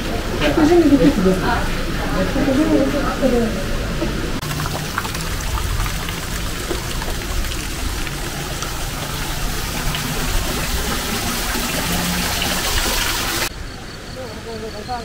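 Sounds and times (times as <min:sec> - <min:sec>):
water rushing over rock: 0:04.4 - 0:13.5.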